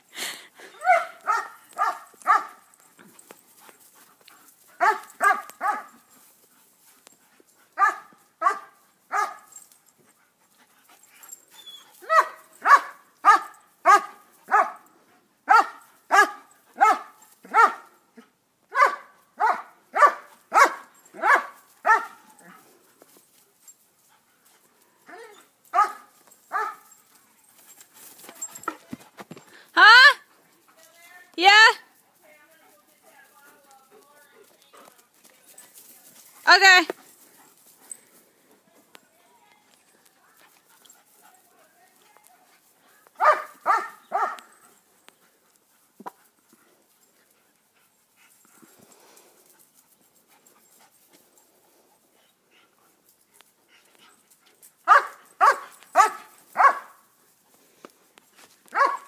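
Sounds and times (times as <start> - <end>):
dog barking: 0.8 - 2.6, 4.8 - 6.0, 7.8 - 9.5, 12.0 - 14.8, 15.5 - 17.9, 18.7 - 22.2, 25.7 - 26.8, 43.2 - 44.5, 54.9 - 57.0, 58.7 - 59.0.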